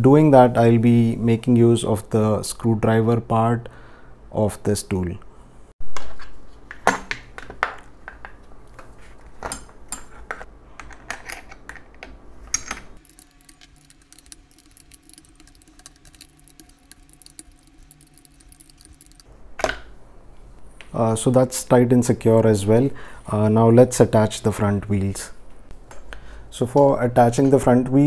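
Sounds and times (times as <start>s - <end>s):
screw turning rapid ticking: 13.0s - 19.3s.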